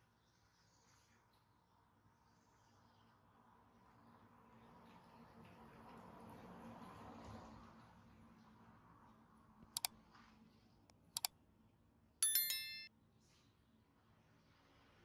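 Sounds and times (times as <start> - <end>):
short bright bell ring: 12.2 - 12.9.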